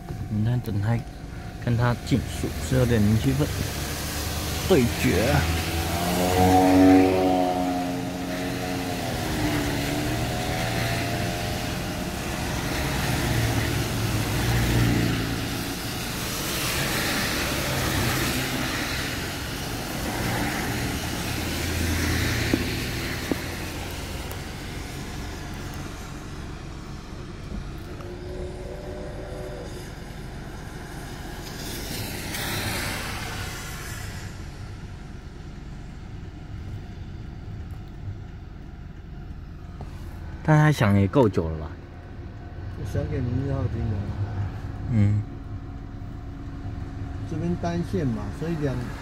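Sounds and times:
car engine running: 0:00.0 - 0:49.0
road noise inside moving car: 0:00.0 - 0:49.0
tyre hiss on wet road: 0:01.8 - 0:27.2, 0:29.2 - 0:35.3
gliding pitched tone: 0:19.0 - 0:35.1
faint pitched tone: 0:27.8 - 0:30.0.

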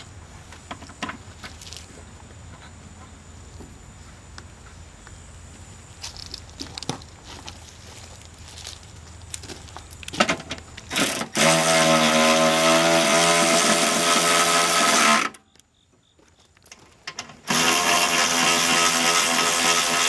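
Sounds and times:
electric ratchet motor whine: 0:10.9 - 0:15.4, 0:17.4 - 0:20.0.

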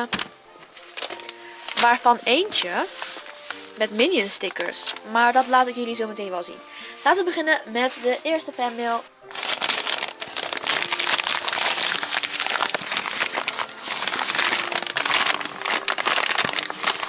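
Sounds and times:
paper mailer crinkling: 0:09.3 - 0:17.0.

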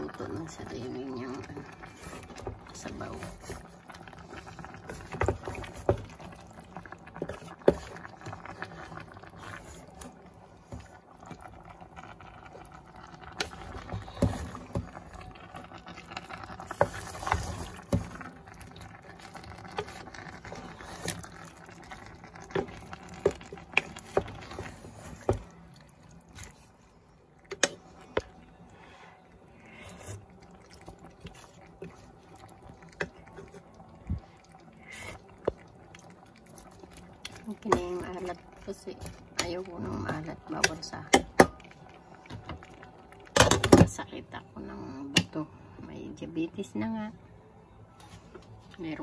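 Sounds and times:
stew sloshing: 0:00.0 - 0:41.2
wooden spatula scraping a pot: 0:00.1 - 0:25.6.

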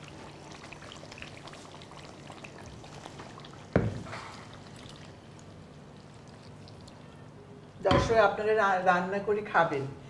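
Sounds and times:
food crackling in hot oil: 0:00.0 - 0:07.1.

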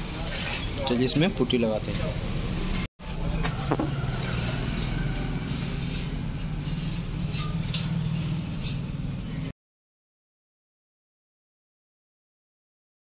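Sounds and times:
low mechanical drone: 0:02.4 - 0:09.5
spreader scraping on metal: 0:03.0 - 0:09.5.

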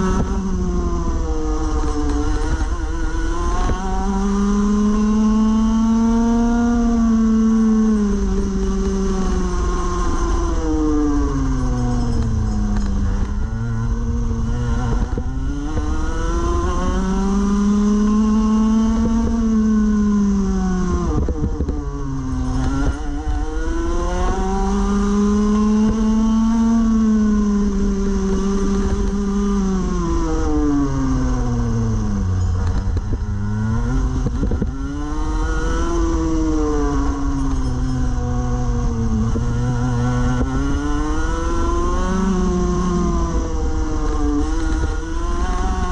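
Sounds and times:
kart engine revving: 0:00.0 - 0:45.9.

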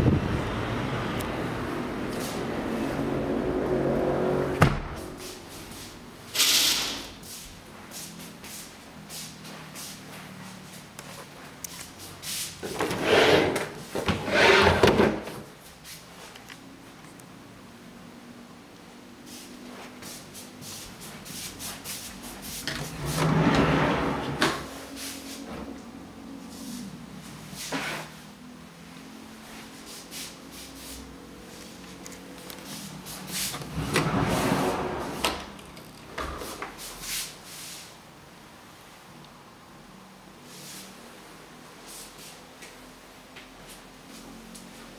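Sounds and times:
folding closet doors opening: 0:22.7 - 0:24.7, 0:33.4 - 0:36.6.

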